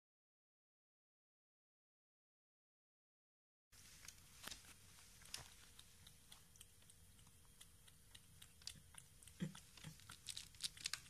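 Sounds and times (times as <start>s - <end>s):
cat lapping milk: 4.8s - 11.0s.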